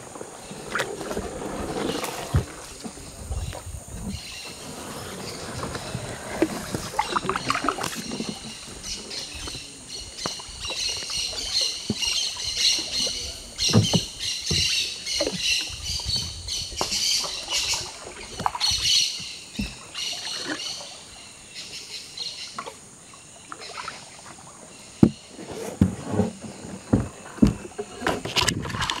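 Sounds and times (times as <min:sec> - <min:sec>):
birds chirping: 0:00.0 - 0:25.6
paddles splashing in water: 0:00.0 - 0:29.0
paddles knocking on wooden canoe: 0:05.3 - 0:20.6, 0:23.5 - 0:29.0.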